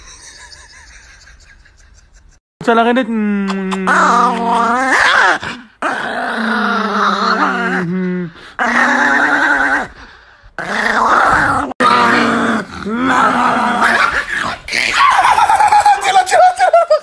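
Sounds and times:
small dog growling: 10.6 - 15.6.

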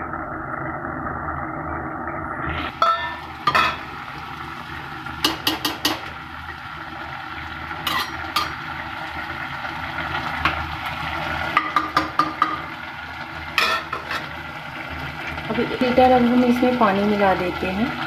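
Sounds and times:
low background hum: 0.0 - 18.0
metal spoon clinking on pot: 2.8 - 3.8, 7.9 - 8.5.

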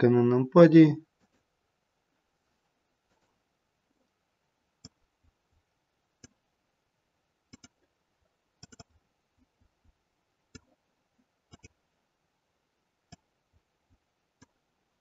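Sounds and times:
mouse and keyboard clicks: 7.5 - 7.8, 8.6 - 8.9, 11.5 - 11.8.

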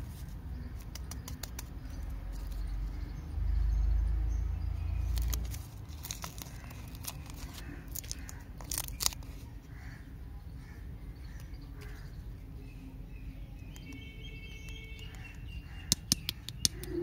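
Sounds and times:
paper wrapper crinkling: 5.0 - 9.6.

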